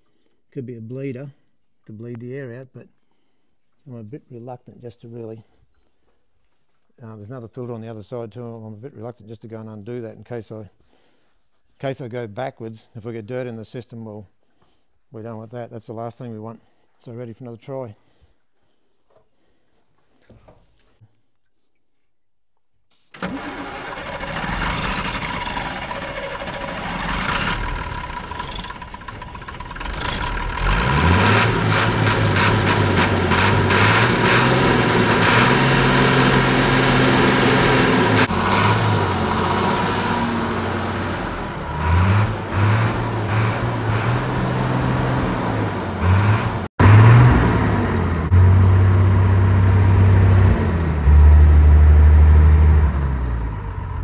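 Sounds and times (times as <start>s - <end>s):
diesel engine cranking on starter: 23.1s - 54.0s
diesel engine running unevenly: 23.2s - 54.0s.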